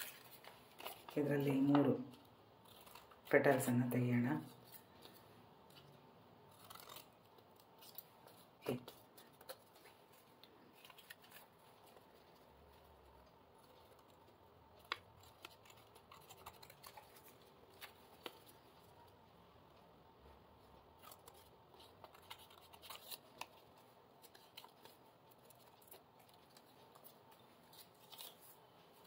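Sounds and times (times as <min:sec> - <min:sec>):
scissors snipping paper: 0:06.5 - 0:12.2, 0:13.6 - 0:18.6, 0:21.0 - 0:28.6.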